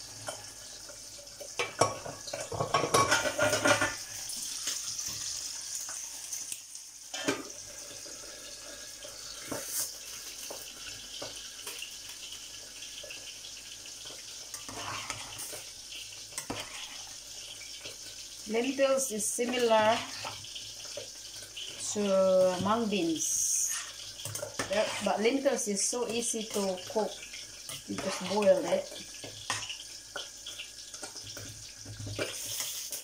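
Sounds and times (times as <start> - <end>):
sizzling hiss: 0.0 - 33.0
metal pots and spoon clattering: 1.4 - 4.2, 7.1 - 7.6, 16.3 - 17.1, 23.6 - 25.2, 25.9 - 33.0.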